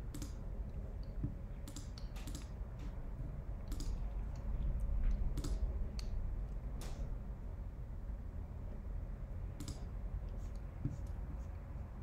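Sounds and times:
steady low hum: 0.0 - 12.0
mouse and keyboard clicks: 0.1 - 0.4, 1.2 - 2.6, 3.6 - 4.5, 5.1 - 6.2, 9.6 - 11.2.

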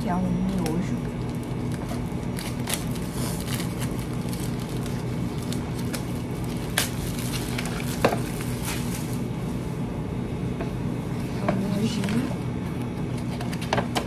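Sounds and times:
steady electrical hum: 0.0 - 14.0
plastic cup crinkling: 0.5 - 9.2.

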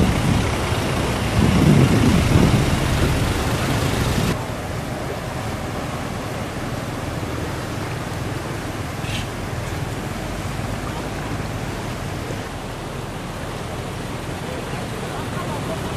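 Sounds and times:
low rumble: 0.0 - 6.3
floodwater rushing and splashing: 0.0 - 15.9.

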